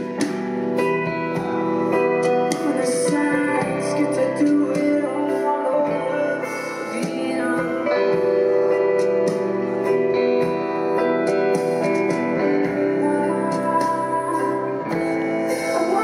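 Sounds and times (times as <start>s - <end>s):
live band playing slow song: 0.0s - 16.0s
woman singing: 2.5s - 9.5s, 12.4s - 16.0s.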